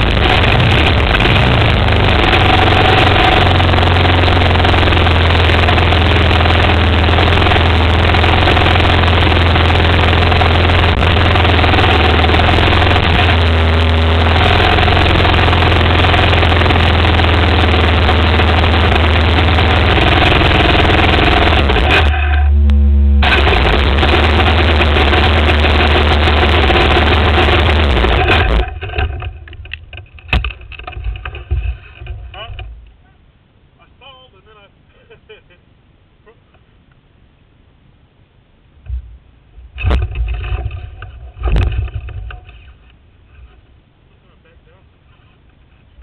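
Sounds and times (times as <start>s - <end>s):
engine idling: 0.0s - 33.2s.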